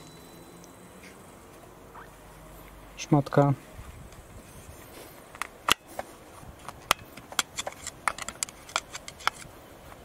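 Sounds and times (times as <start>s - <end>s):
screwdriver clicking inside metal bore: 6.9s - 9.5s.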